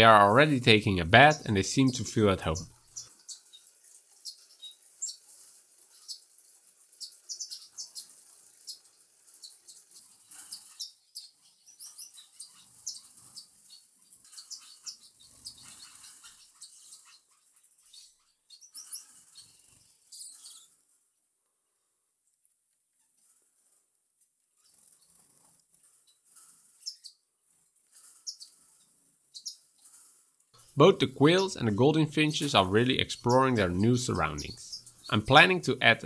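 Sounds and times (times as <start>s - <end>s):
finches chirping: 0.0s - 10.0s.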